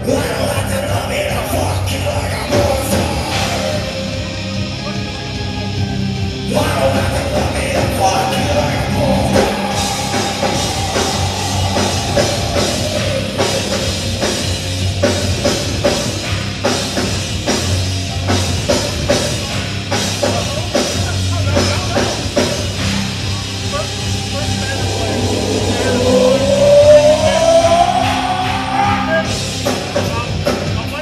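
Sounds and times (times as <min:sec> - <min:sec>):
heavy rock band playing: 0:00.0 - 0:31.0
person singing: 0:06.5 - 0:14.2, 0:24.1 - 0:29.2.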